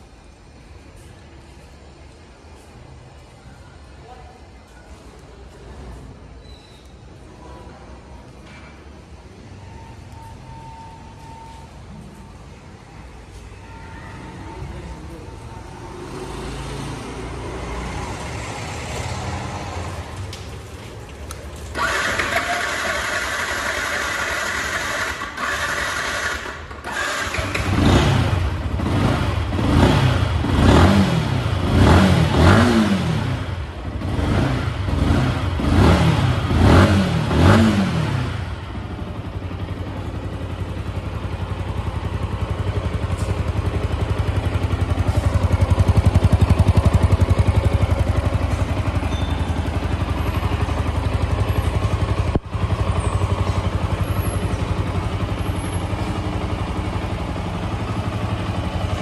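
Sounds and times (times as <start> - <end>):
motorcycle engine revving and idling: 21.6 - 59.0.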